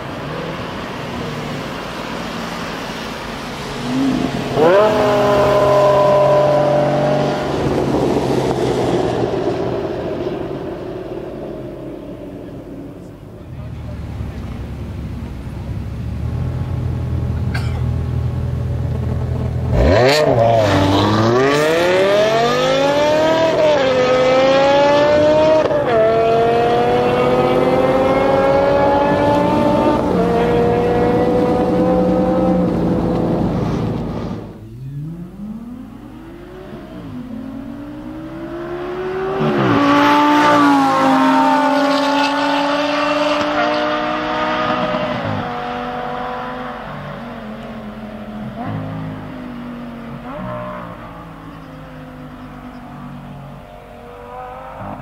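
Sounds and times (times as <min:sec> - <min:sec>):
car engine accelerating hard: 0:00.0 - 0:55.0
car engine idling: 0:09.7 - 0:19.7.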